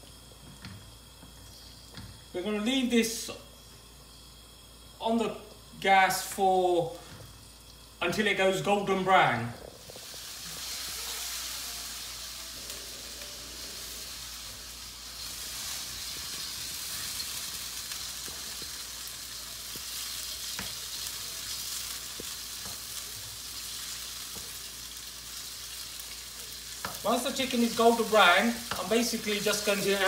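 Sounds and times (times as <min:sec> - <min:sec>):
chicken sizzling in oil: 0:00.0 - 0:30.0.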